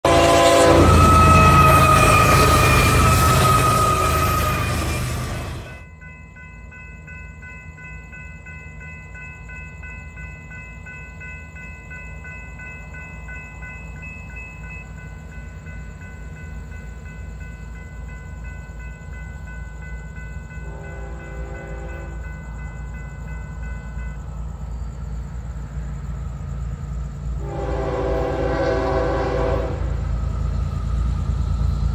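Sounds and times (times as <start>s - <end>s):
train horn blast: 0.0s - 5.8s, 20.6s - 22.2s, 27.4s - 30.2s
crossing bell ringing: 0.0s - 31.9s
train rumble: 0.0s - 31.9s.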